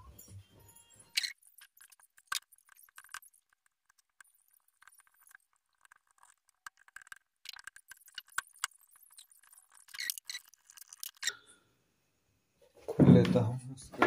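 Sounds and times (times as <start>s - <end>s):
flux crackling and ticking: 1.1s - 11.5s.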